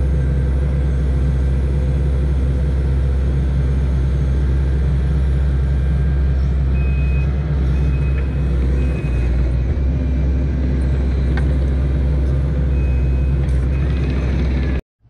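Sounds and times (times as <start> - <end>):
diesel engine running: 0.0 - 14.8
faint high beep: 6.7 - 9.3.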